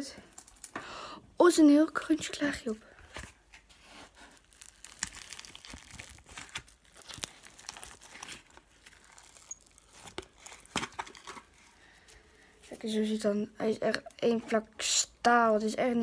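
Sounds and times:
slime crackling and crinkling: 2.0s - 14.7s.

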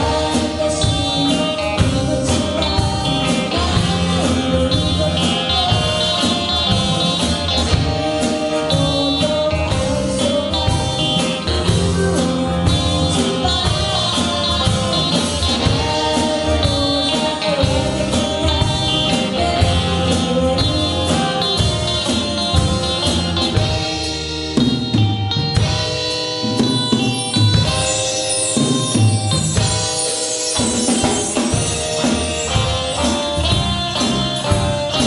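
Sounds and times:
woman singing lead: 0.0s - 23.7s
drum kit: 0.0s - 35.0s
electric bass: 0.0s - 35.0s
electric guitars: 0.0s - 35.0s.

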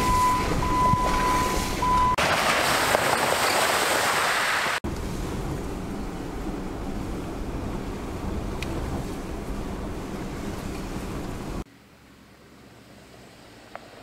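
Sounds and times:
engine and road noise in cab: 0.0s - 2.3s, 4.6s - 14.0s
tyres on gravel: 0.0s - 5.6s.

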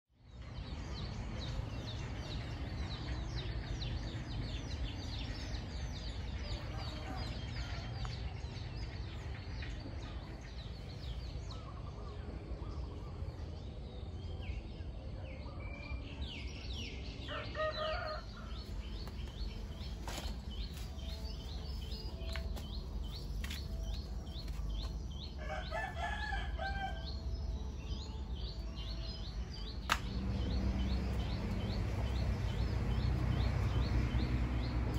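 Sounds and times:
small birds chirping: 0.2s - 34.9s
rooster crowing: 17.3s - 18.6s, 25.4s - 27.2s
steady low rumble: 18.2s - 25.4s, 26.5s - 34.9s.

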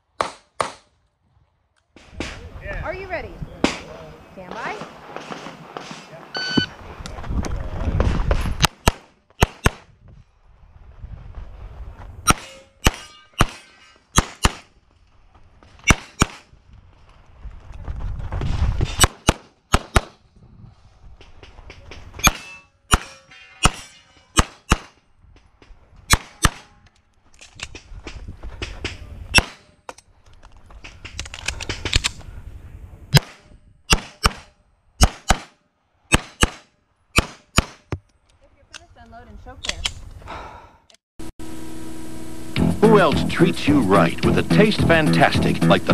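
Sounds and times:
pistol shots: 8.6s - 9.9s, 12.3s - 14.7s, 24.4s - 25.0s, 26.1s - 26.8s, 33.1s - 37.9s.

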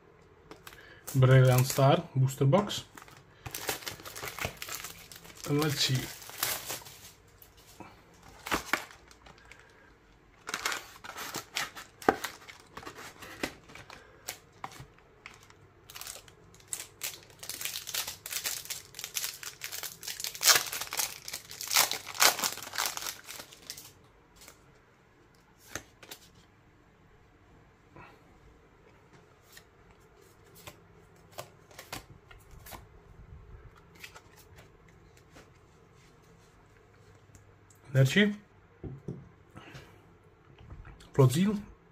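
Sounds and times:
foil wrapper crinkling and tearing: 0.6s - 2.0s, 2.9s - 7.7s, 10.4s - 24.6s.

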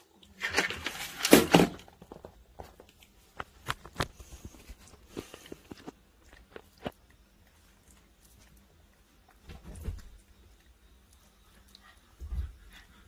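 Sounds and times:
rustling and handling: 0.1s - 11.1s
monkey eating: 2.8s - 9.4s.

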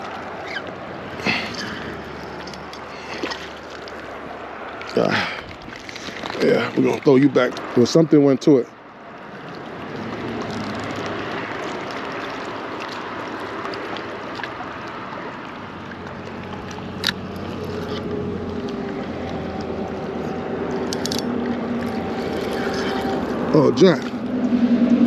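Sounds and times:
wind: 0.0s - 25.0s
small waves washing against rocks: 9.2s - 24.2s.

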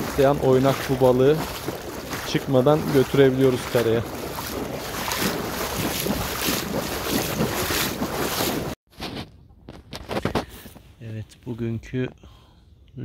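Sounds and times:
lapping water: 0.0s - 8.8s
wind buffeting microphone: 0.0s - 8.8s.

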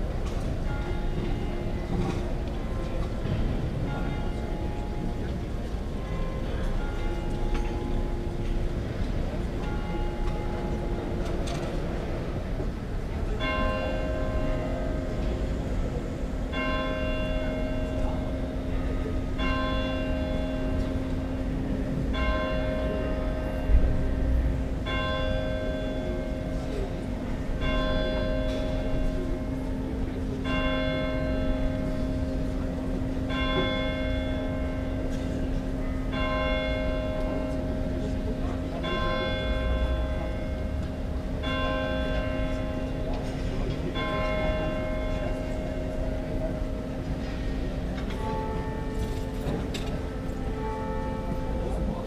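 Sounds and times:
large church bell ringing: 0.0s - 52.0s.

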